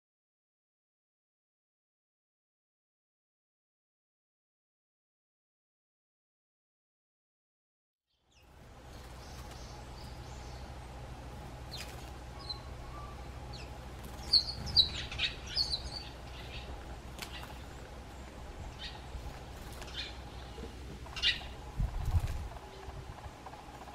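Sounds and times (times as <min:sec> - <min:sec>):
sparrows chirping: 0:08.1 - 0:23.9
steady low hum: 0:08.3 - 0:23.9.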